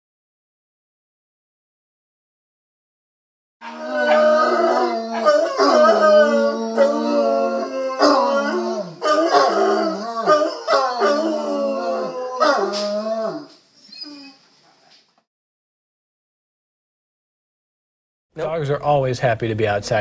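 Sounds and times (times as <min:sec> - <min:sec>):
dogs howling: 0:03.6 - 0:14.4.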